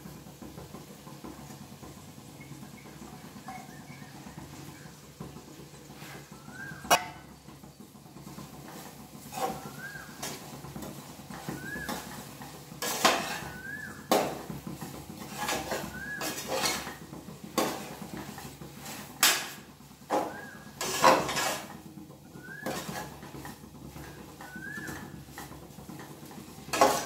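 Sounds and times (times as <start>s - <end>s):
metal spoon scraping a pot: 8.7s - 14.5s, 15.2s - 21.8s, 22.5s - 24.2s, 26.7s - 27.0s.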